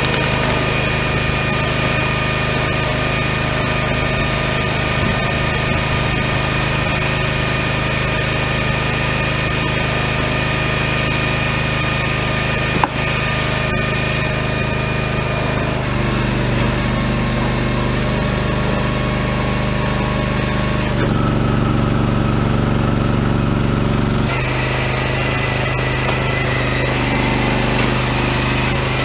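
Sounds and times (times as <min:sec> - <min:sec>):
firewood processor running: 0:00.0 - 0:29.0
sharp knock: 0:12.8 - 0:13.1.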